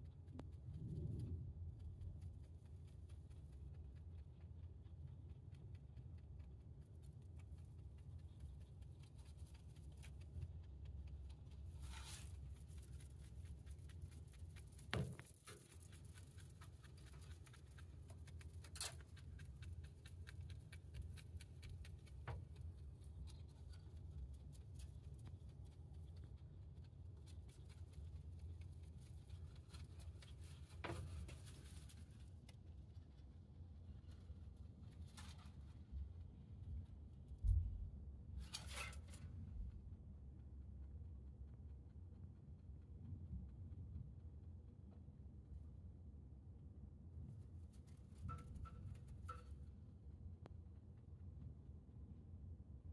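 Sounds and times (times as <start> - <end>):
rabbit chewing hay: 0.0 - 52.2
low steady hum: 0.0 - 52.9.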